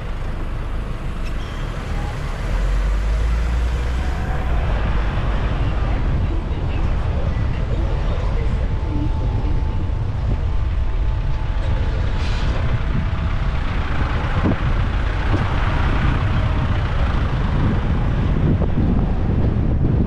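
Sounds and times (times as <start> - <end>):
constant rushing noise: 0.0 - 20.0
low engine rumble: 0.0 - 20.0.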